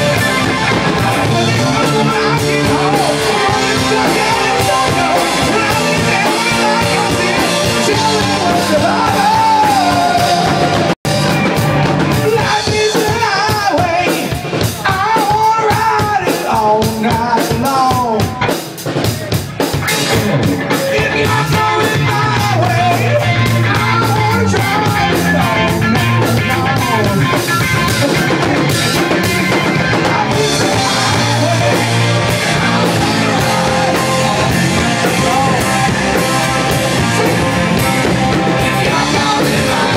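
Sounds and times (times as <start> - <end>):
electric guitar: 0.0 - 15.0, 16.9 - 39.9
keyboard: 0.0 - 16.2, 18.0 - 39.9
bass guitar: 0.0 - 39.9
drum kit: 0.0 - 39.9
man singing into microphone: 0.6 - 10.9, 12.2 - 18.5, 20.6 - 27.4, 29.7 - 39.9.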